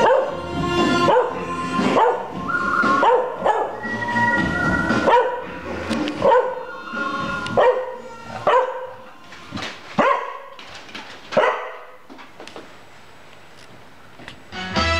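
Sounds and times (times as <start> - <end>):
dog barking: 0.0 - 0.4, 1.0 - 2.3, 3.0 - 3.8, 5.0 - 5.5, 6.2 - 6.7, 7.5 - 9.1, 10.0 - 10.6, 11.3 - 12.0
orchestral music: 0.0 - 8.4.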